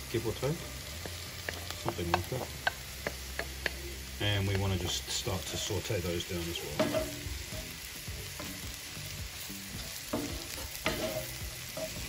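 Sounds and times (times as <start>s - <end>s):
vegetables sizzling in a frying pan: 0.0s - 12.0s
spoon clacking against a pan: 1.0s - 3.8s, 10.0s - 12.0s.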